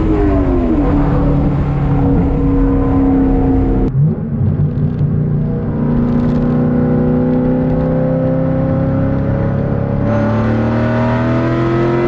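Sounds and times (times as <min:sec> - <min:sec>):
car engine running: 0:00.0 - 0:08.3.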